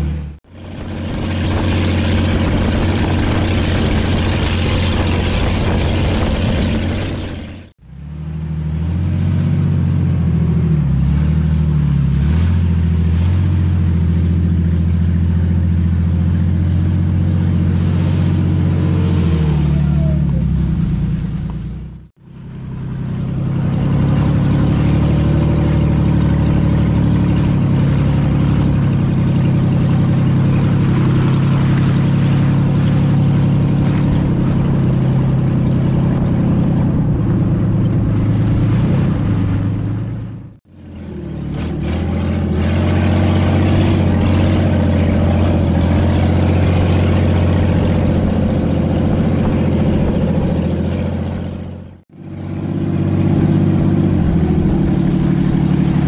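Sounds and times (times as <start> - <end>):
car engine running while driving: 0.0 - 56.0.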